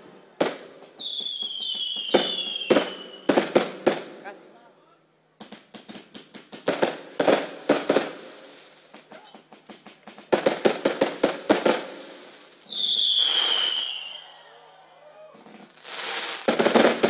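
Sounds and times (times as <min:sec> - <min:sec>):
fireworks cracking bangs: 0:00.0 - 0:04.4, 0:05.4 - 0:17.0
whistling firework: 0:00.4 - 0:03.4, 0:10.6 - 0:17.0.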